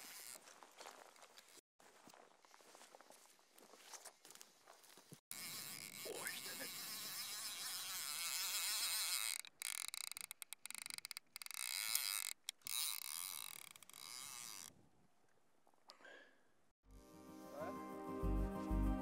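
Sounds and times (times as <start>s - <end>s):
fly reel buzzing: 0.0s - 0.4s, 5.3s - 14.7s.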